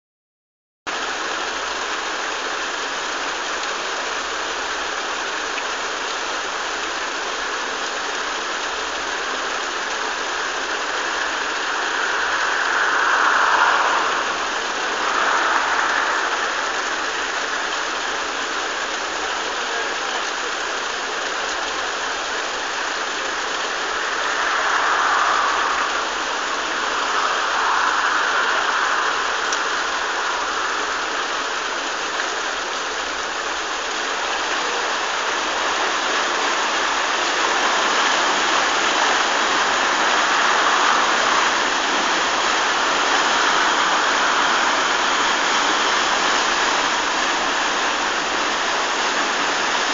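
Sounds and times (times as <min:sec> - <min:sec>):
water rushing through lock gates: 0:25.3 - 0:49.9.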